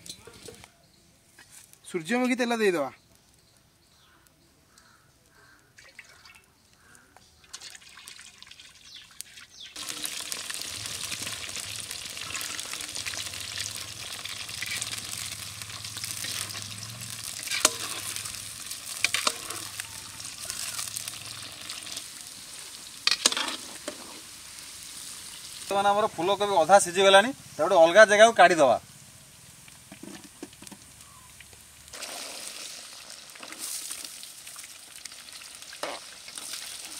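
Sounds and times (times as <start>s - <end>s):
vegetables deep-frying in oil: 7.4s - 36.9s.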